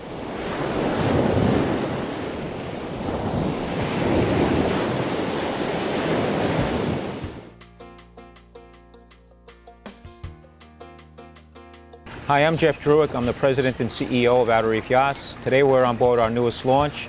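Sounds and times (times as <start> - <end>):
ocean waves: 0.0 - 7.6, 12.0 - 17.0
wind: 0.0 - 7.6, 12.0 - 17.0.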